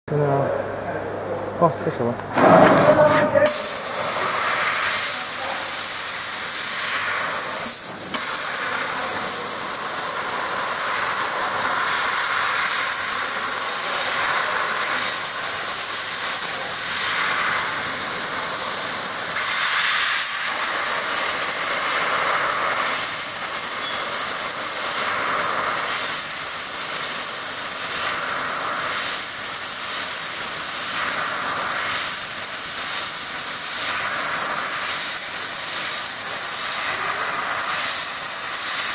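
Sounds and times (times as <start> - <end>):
thin high whine: 2.3 - 12.8, 21.8 - 26.0
laser cutter gas hiss: 2.4 - 38.9.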